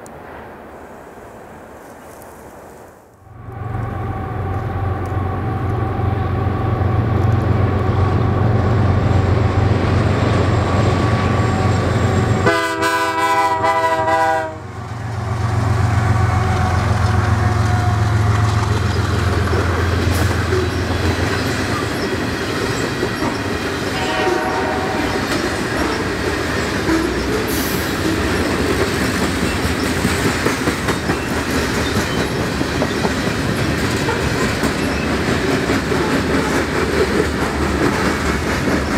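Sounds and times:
diesel locomotive engines droning: 0:03.2 - 0:38.9
locomotive horn: 0:11.0 - 0:15.0, 0:15.8 - 0:20.3, 0:23.9 - 0:26.2
train cars clicking over rails: 0:14.8 - 0:38.9.

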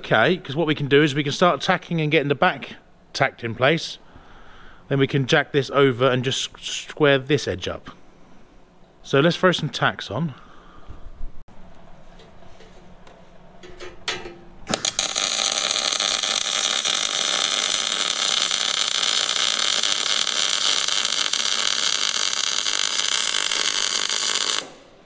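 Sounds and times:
welding arc buzzing: 0:14.6 - 0:25.0.

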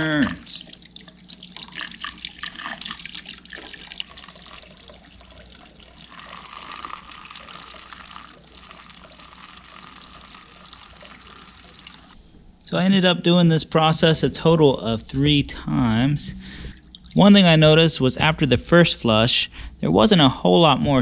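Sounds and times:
liquid splashing and gurgling: 0:00.0 - 0:12.2
trickling stream of liquid: 0:00.0 - 0:12.2, 0:16.7 - 0:17.3.

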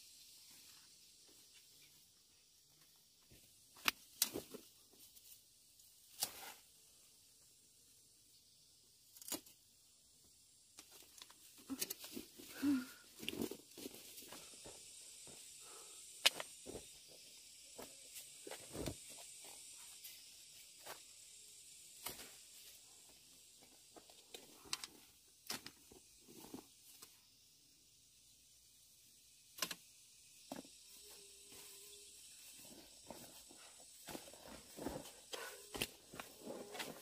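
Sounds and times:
faint steady hiss: 0:00.0 - 0:37.0.

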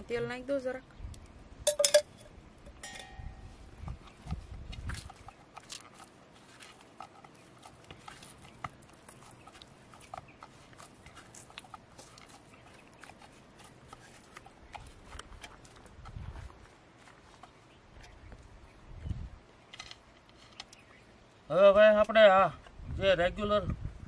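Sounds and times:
hands kneading dough: 0:03.8 - 0:18.0.

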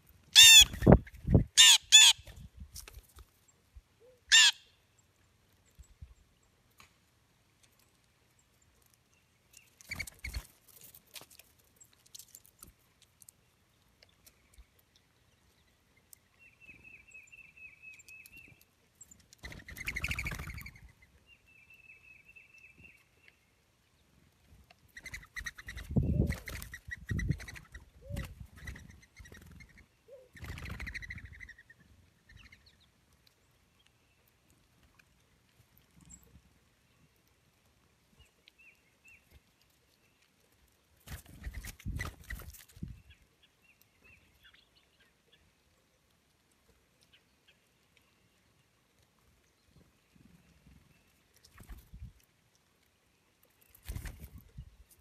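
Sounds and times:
fluttering wingbeats: 0:09.8 - 0:10.6, 0:19.4 - 0:20.8, 0:25.0 - 0:31.2, 0:41.0 - 0:42.9, 0:51.4 - 0:52.0, 0:53.7 - 0:54.5.

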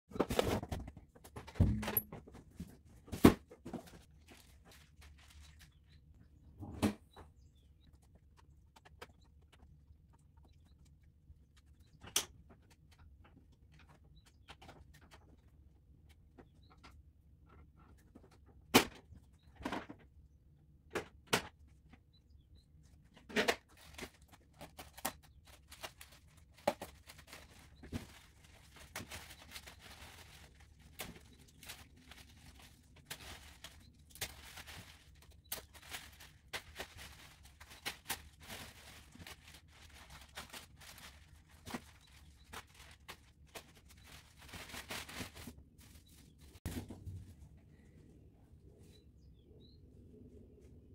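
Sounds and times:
plastic wrap crinkling: 0:03.8 - 0:06.2, 0:23.7 - 0:46.7.

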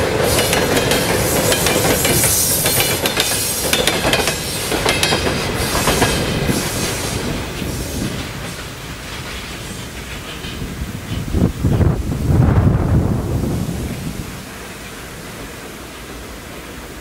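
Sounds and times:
train wheels clicking over rail joints: 0:00.0 - 0:11.7
train rumble: 0:00.0 - 0:17.0.

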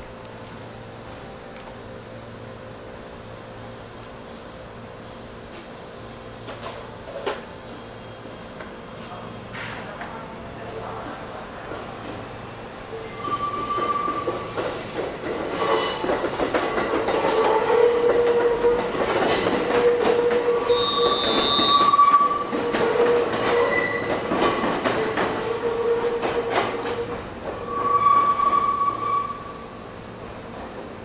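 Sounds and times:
train wheels squealing on rails: 0:12.9 - 0:31.0.

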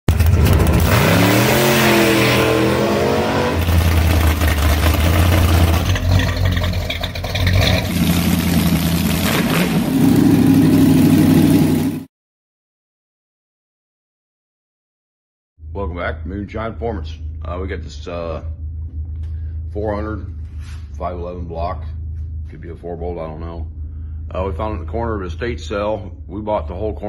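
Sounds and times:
vee eight engines revving: 0:00.2 - 0:06.5, 0:07.4 - 0:12.0.

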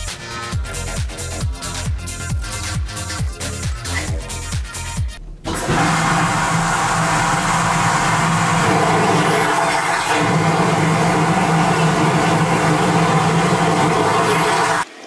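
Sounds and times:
toilet flushing: 0:05.5 - 0:15.0.

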